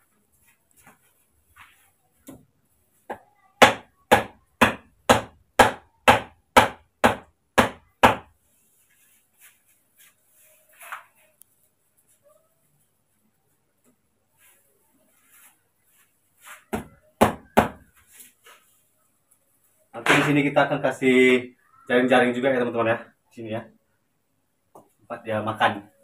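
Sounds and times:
hammer striking bamboo pole: 3.6s - 8.3s.

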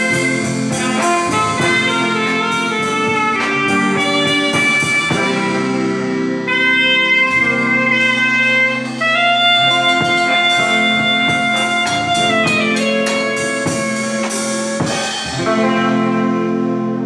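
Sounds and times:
drum hits: 0.0s - 16.0s
live band playing: 0.0s - 17.0s
saxophone long notes: 0.0s - 17.0s.

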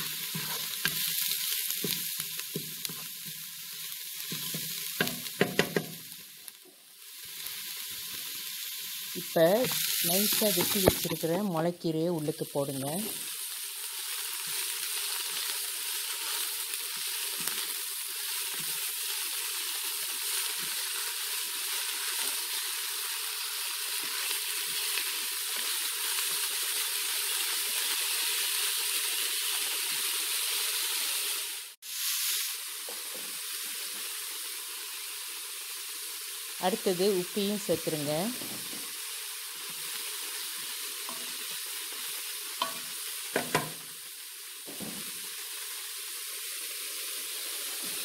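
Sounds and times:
vegetables sizzling in hot oil: 0.0s - 48.0s.

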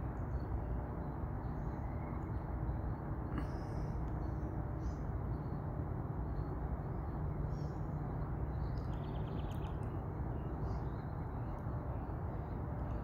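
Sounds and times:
low outdoor rumble: 0.0s - 13.0s
bird twitter: 8.5s - 13.0s.

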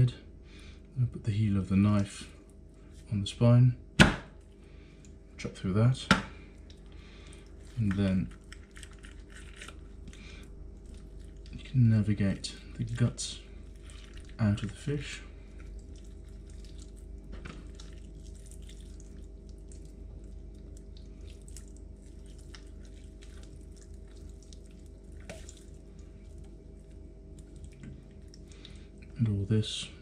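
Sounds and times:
steady background hum: 0.0s - 30.0s
wet clicks and squelches of fish guts: 4.4s - 5.2s, 6.5s - 11.6s, 13.6s - 29.2s.

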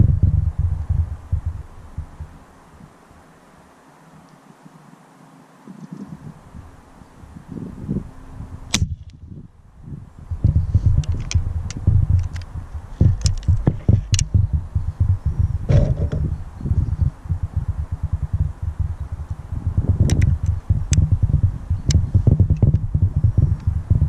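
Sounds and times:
wind buffeting microphone: 0.0s - 3.2s, 5.7s - 24.0s
air rifle shot: 8.7s - 9.1s
rifle handling clicks: 11.0s - 12.5s.

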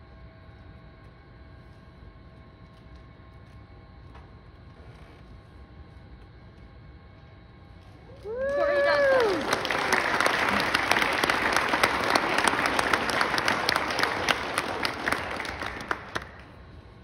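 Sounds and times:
small audience applauding: 8.1s - 17.0s.

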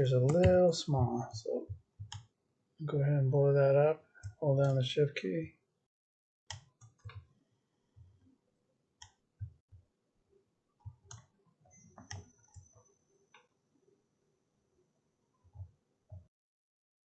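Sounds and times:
computer mouse clicks: 2.0s - 2.3s, 6.5s - 7.3s, 9.0s - 9.5s, 10.8s - 13.6s.

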